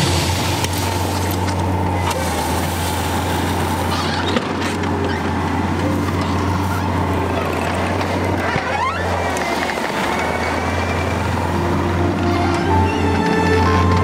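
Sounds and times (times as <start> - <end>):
bucket pushing gravel: 0.0 - 5.0
diesel engine droning: 0.0 - 14.0.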